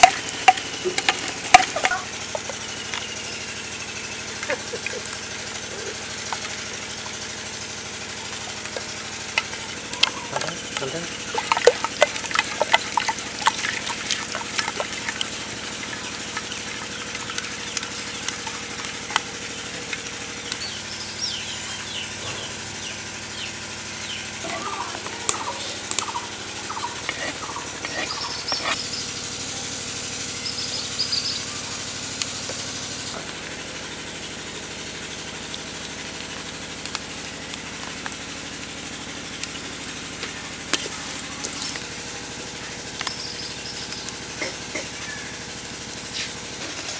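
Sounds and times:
birds chirping: 0:00.0 - 0:29.5, 0:30.2 - 0:33.2, 0:41.0 - 0:45.5
fowl calling: 0:24.4 - 0:28.8.

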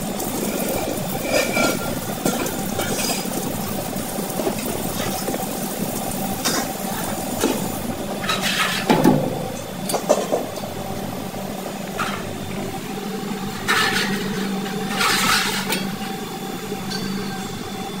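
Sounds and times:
tap water running into sink: 0:00.0 - 0:07.9
steady machine hum: 0:00.0 - 0:18.0.

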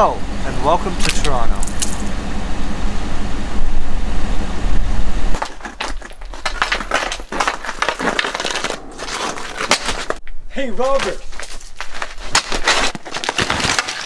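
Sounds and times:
low rumble: 0:00.0 - 0:10.6
skates scraping on ice: 0:05.4 - 0:10.2, 0:10.8 - 0:14.0.

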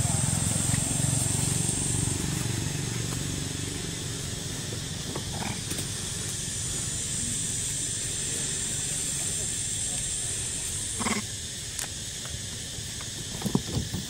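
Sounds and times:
motorbike engine driving past: 0:00.0 - 0:07.8
high-pitched hiss: 0:00.0 - 0:14.0.

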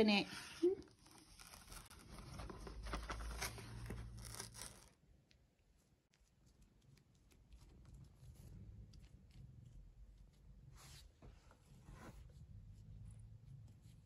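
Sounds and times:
paper bag rustling and tearing: 0:00.8 - 0:05.0.

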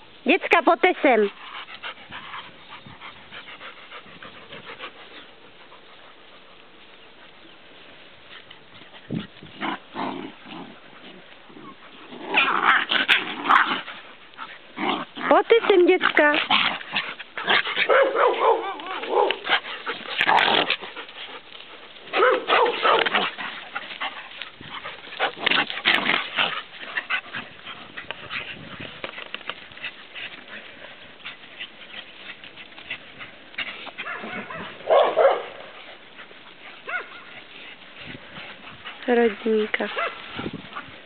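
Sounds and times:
dogs barking and yipping: 0:08.3 - 0:41.0.

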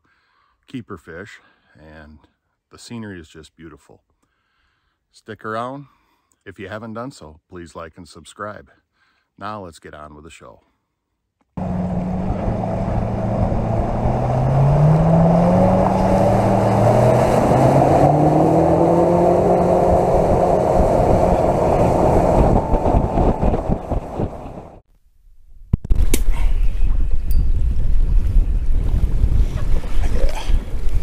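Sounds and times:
wind: 0:00.0 - 0:31.0
boat motor speeding up: 0:11.6 - 0:24.8
water noise: 0:11.6 - 0:24.8.

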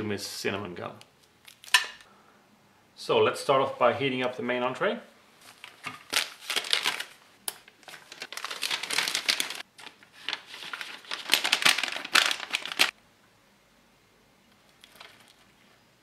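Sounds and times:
plastic bag crinkling: 0:05.4 - 0:13.0, 0:14.7 - 0:15.7.

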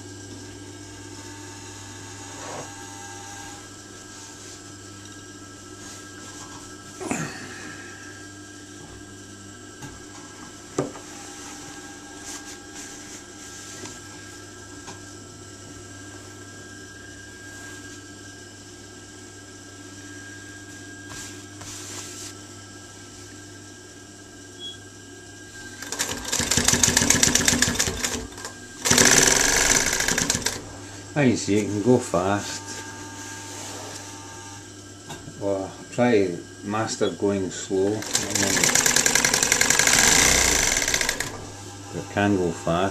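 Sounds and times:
sewing machine motor humming: 0:25.7 - 0:30.8, 0:38.0 - 0:42.8
sewing machine stitching fast: 0:25.8 - 0:30.6, 0:38.0 - 0:41.4.

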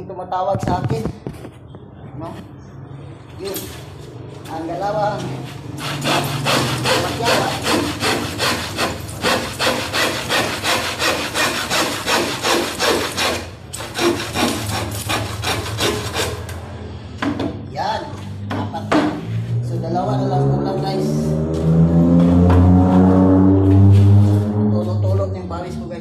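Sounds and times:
hand saw cutting plywood: 0:05.8 - 0:16.5.

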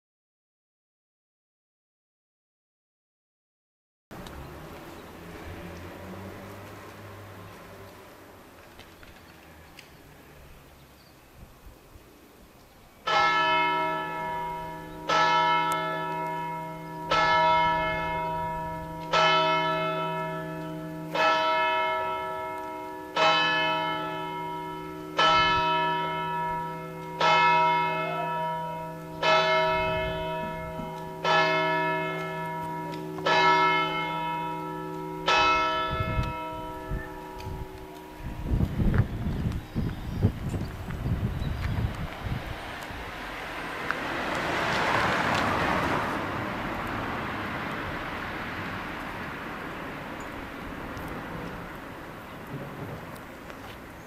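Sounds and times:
church bell striking: 0:13.0 - 0:38.4.

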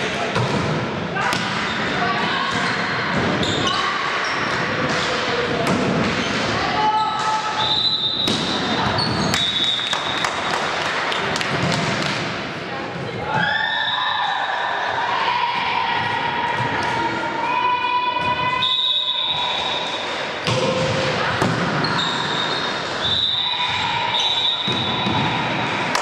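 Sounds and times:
volleyball hits: 0:07.2 - 0:12.4, 0:20.4 - 0:23.0.

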